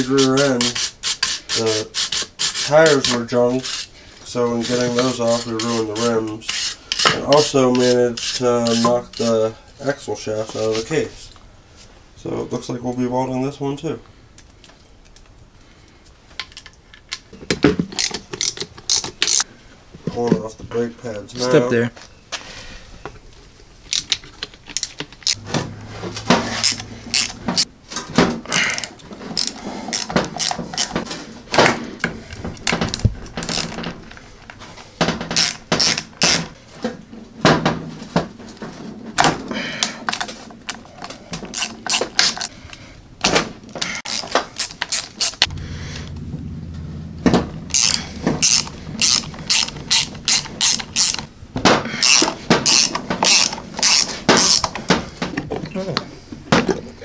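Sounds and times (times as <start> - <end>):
ratchet wrench clicking: 18.0 - 19.4, 26.5 - 27.7, 28.5 - 30.9, 33.5 - 33.8, 35.4 - 36.4, 44.1 - 45.5, 47.7 - 51.3, 52.0 - 54.7
metal parts clanking: 24.7 - 31.1, 32.4 - 34.3, 47.7 - 51.4.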